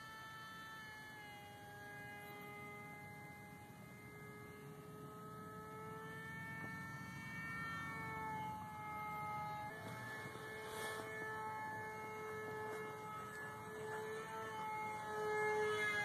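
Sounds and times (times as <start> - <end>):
model plane motor whining: 0.0 - 16.0.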